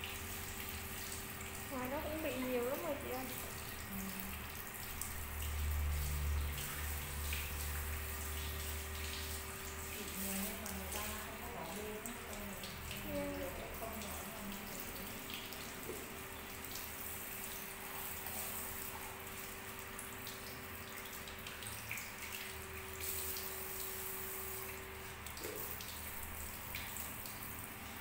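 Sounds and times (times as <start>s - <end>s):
water splashing into sink: 0.0s - 28.0s.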